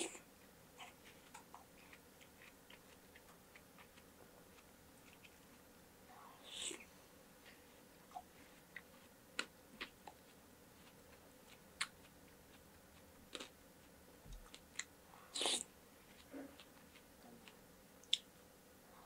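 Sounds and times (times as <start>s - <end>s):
chewing fruit and ice: 0.8s - 5.7s, 8.1s - 18.3s.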